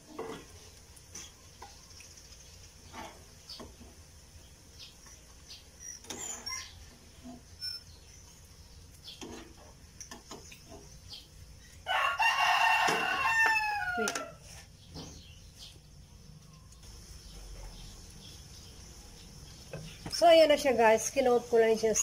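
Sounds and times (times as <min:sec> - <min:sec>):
rooster crowing: 0:11.8 - 0:14.5.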